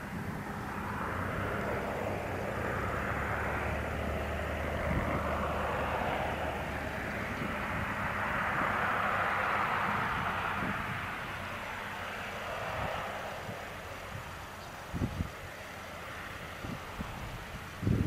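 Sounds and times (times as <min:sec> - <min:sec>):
turboprop plane droning: 0:00.0 - 0:18.0.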